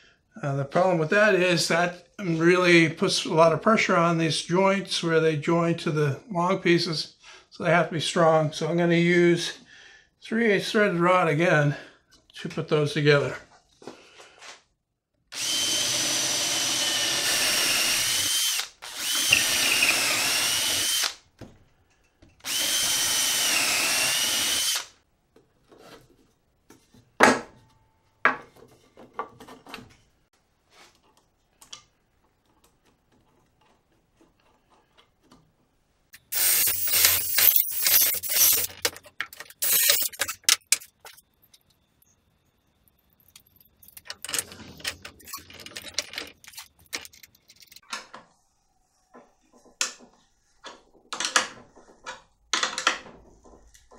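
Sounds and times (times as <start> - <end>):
cordless drill boring wood: 15.3 - 21.2, 22.4 - 25.0, 36.2 - 40.4
clattering and clicking: 36.7 - 41.8, 43.1 - 48.3.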